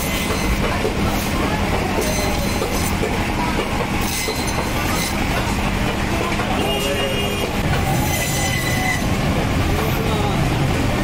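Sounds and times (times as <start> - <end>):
saw blade rasping: 0.0 - 3.2, 3.8 - 5.6, 7.9 - 9.1.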